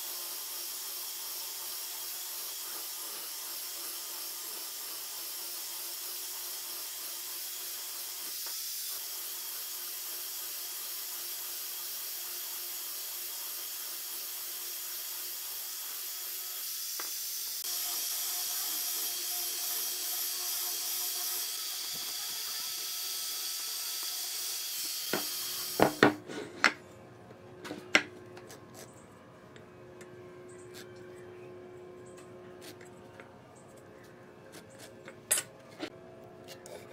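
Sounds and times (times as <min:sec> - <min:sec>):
angle grinder sanding wood: 0:00.0 - 0:26.1.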